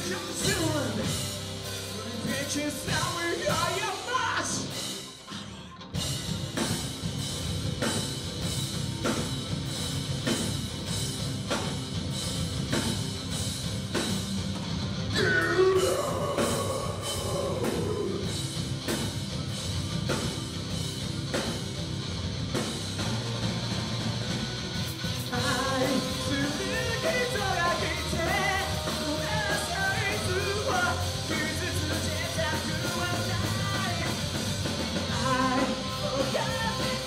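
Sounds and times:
person singing: 0.0s - 4.8s, 15.2s - 18.4s, 25.3s - 34.4s, 35.1s - 37.0s
steady drum beat: 0.0s - 5.3s, 5.9s - 37.0s
live rock band playing: 0.0s - 37.0s.

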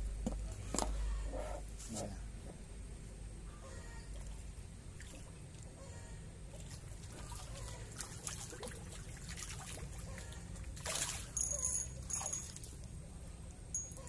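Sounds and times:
fish splashing in water: 6.5s - 13.0s.

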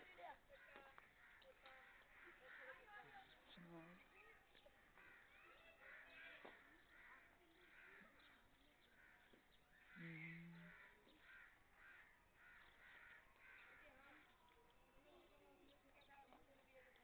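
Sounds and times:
crows cawing faintly: 0.5s - 3.5s, 4.4s - 15.3s.

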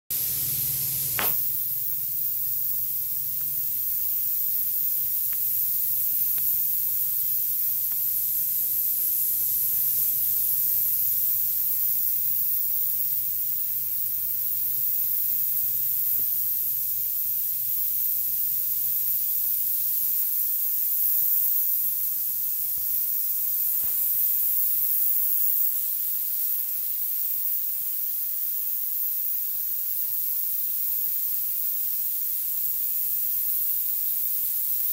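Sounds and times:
fogger spraying hiss: 0.1s - 34.9s
click: 5.2s - 5.5s, 6.2s - 6.5s.

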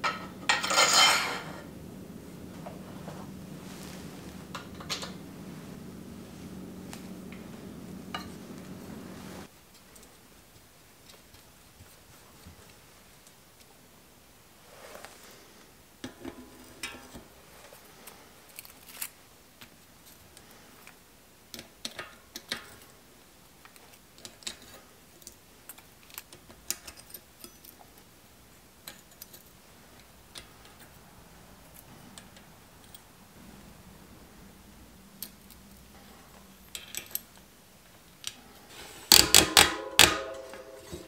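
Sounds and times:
metal cogs clicking and clinking: 0.0s - 2.8s, 4.3s - 9.1s, 36.6s - 37.4s
sharp metal taps: 39.1s - 41.0s.

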